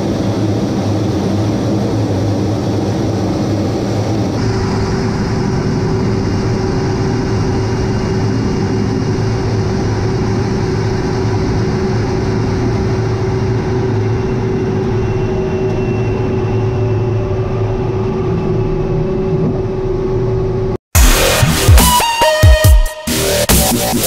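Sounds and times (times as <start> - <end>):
jet engines running: 0.0 - 22.4
electronic dance music: 21.0 - 24.0.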